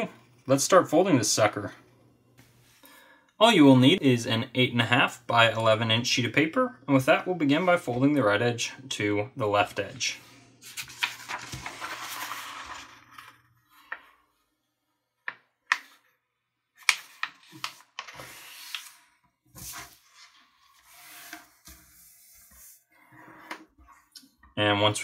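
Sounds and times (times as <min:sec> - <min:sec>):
paper rustling and sliding: 0:10.2 - 0:14.1, 0:16.8 - 0:23.7.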